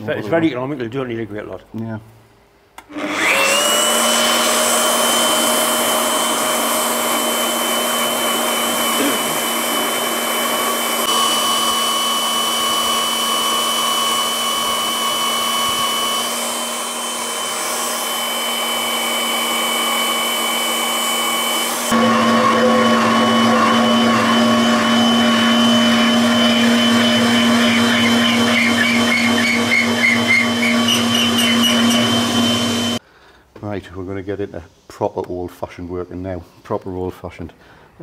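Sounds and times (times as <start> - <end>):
electric drill whining: 2.9 - 33.0.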